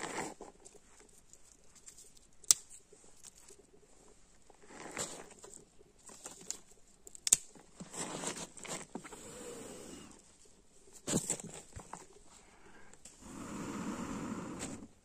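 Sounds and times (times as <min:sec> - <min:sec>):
rustling: 0:00.0 - 0:15.0
person blowing on kindling: 0:09.0 - 0:10.2, 0:13.2 - 0:14.9.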